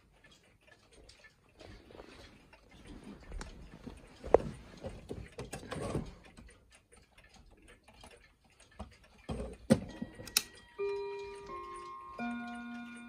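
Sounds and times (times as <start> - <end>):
pendulum clocks ticking: 0.0 - 13.0
clock striking chime: 9.8 - 13.0.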